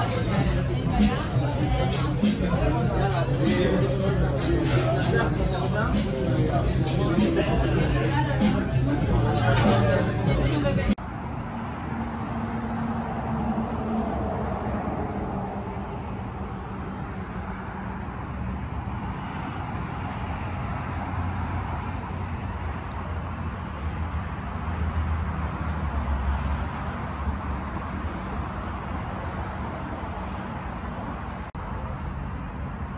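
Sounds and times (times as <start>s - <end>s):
highway traffic rumble: 0.0s - 32.9s.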